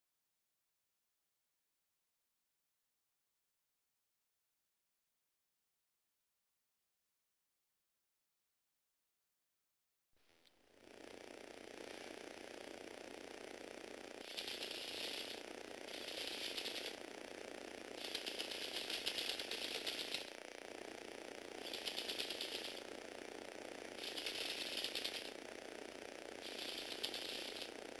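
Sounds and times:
small electric motor whirring: 0:10.3 - 0:28.0
rapid plastic clicking and rattling: 0:10.9 - 0:28.0.

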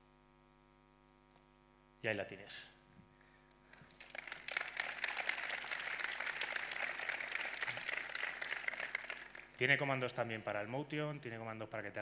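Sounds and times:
audience applauding: 0:03.8 - 0:09.6.

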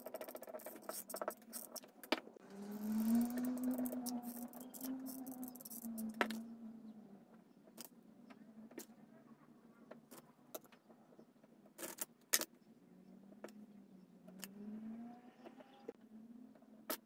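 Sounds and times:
wooden sticks clicking and clacking: 0:00.0 - 0:06.5.

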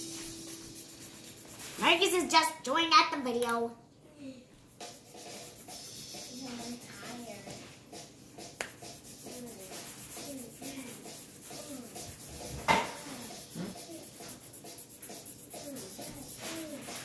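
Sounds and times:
pencil scratching on paper: 0:00.2 - 0:02.4, 0:04.8 - 0:07.7, 0:08.8 - 0:17.0.

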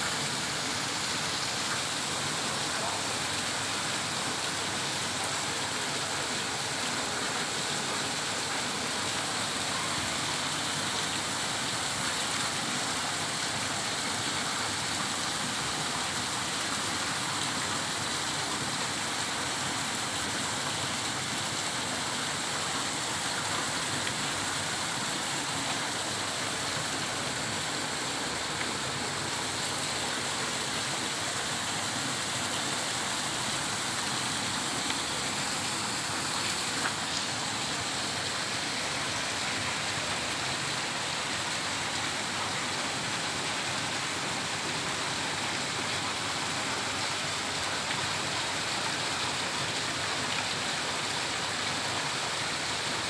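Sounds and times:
heavy rain falling: 0:00.0 - 0:53.0.

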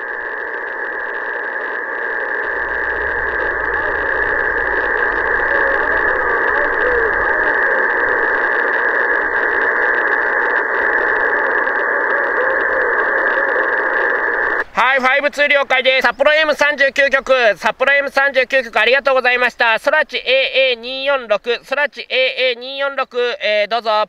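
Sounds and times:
faint wavering tones: 0:00.0 - 0:17.3
weak distant radio station: 0:00.0 - 0:23.3
radio static hiss: 0:00.0 - 0:24.0.

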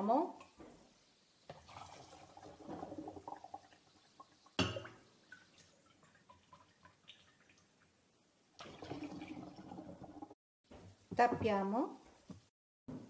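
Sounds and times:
liquid trickling into bottle: 0:01.5 - 0:07.7, 0:08.6 - 0:10.2
drips: 0:01.5 - 0:08.0.

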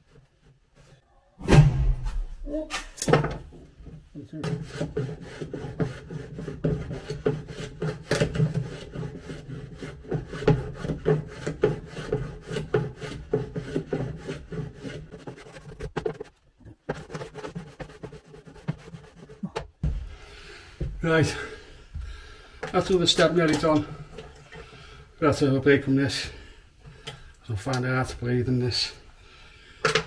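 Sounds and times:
wood rubbed by hand: 0:04.2 - 0:20.1.

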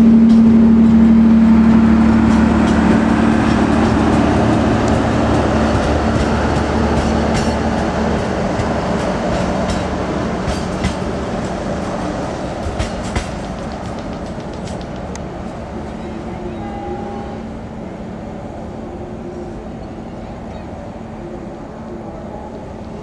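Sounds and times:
steady hum: 0:00.0 - 0:15.9
train wheels clicking over rail joints: 0:00.2 - 0:16.0.

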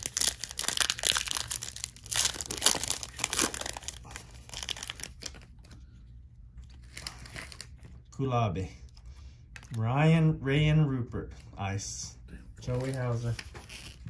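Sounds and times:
foil pack tearing and crinkling: 0:00.0 - 0:05.5, 0:06.8 - 0:07.8
cards rustling: 0:00.0 - 0:06.0, 0:12.6 - 0:14.0.

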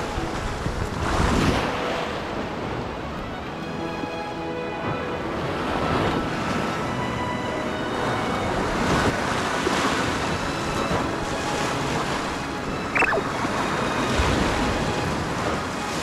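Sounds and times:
wind buffeting microphone: 0:00.0 - 0:03.1
high chirp: 0:12.9 - 0:13.3.

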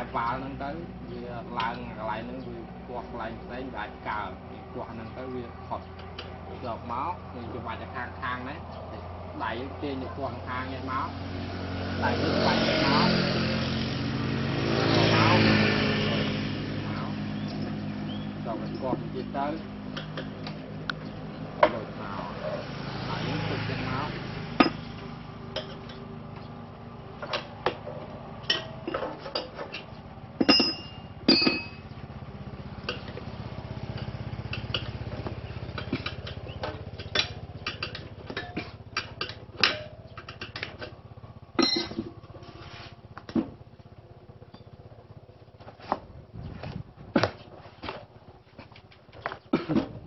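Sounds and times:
ringing metal clinks: 0:30.4 - 0:31.9, 0:41.6 - 0:42.0
metallic clicks and clanks: 0:34.0 - 0:41.0.

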